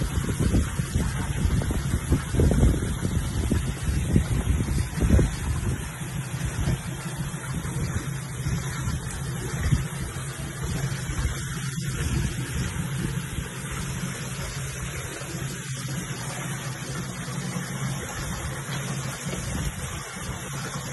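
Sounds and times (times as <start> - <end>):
low mechanical hum: 0.0 - 20.9.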